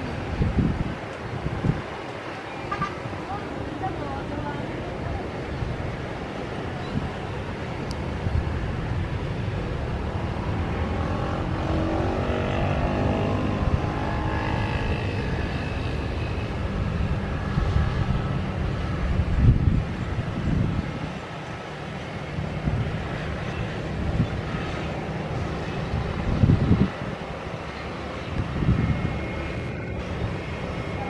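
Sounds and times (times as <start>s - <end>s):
jet engines rumbling and whining: 0.0s - 31.0s
road traffic: 0.0s - 31.0s
vehicle passing by: 9.1s - 21.3s.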